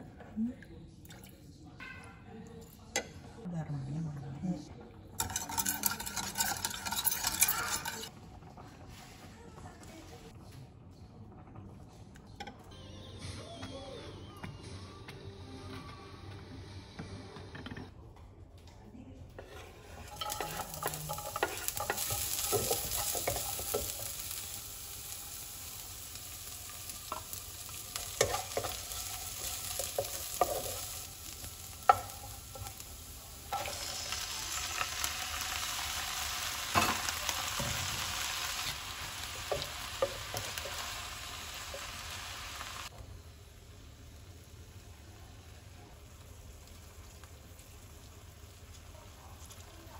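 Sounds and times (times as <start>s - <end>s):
vegetables sizzling in hot oil: 5.2s - 8.1s, 19.6s - 49.9s
wooden spatula scraping pan: 5.2s - 8.1s.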